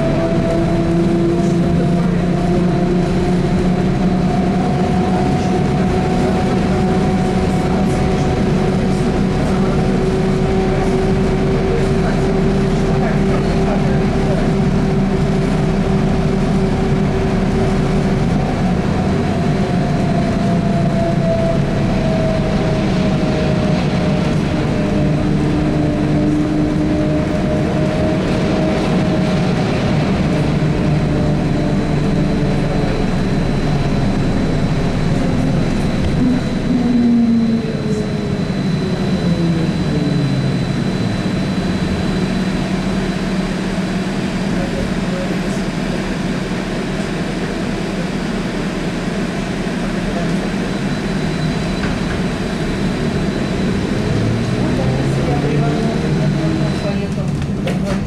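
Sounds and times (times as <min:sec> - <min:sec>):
running rumble: 0:00.0 - 0:58.0
thin high whine: 0:33.0 - 0:42.8.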